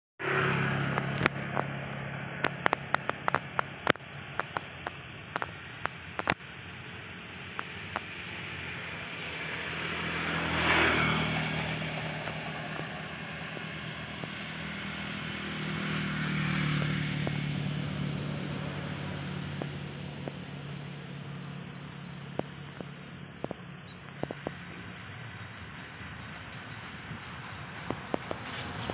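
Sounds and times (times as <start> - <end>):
low vehicle engine hum: 0.2 - 28.9
sharp irregular ticks: 2.4 - 6.6, 7.5 - 8.2, 9.1 - 17.8, 22.3 - 28.9.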